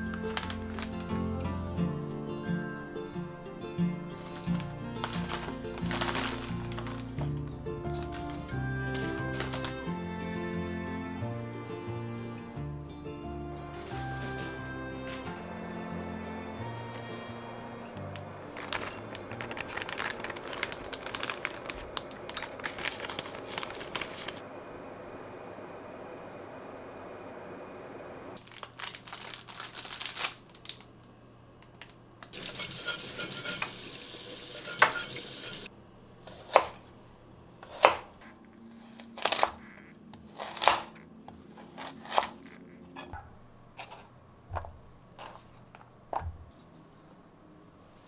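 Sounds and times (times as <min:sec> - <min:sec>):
rustling noise: 0:04.2 - 0:09.8, 0:18.1 - 0:24.5
dishes and utensils clinking: 0:32.4 - 0:35.7.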